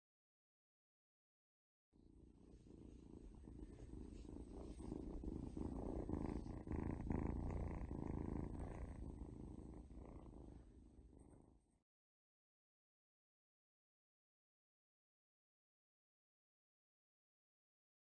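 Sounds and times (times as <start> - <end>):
kitten purring: 2.0 - 11.8.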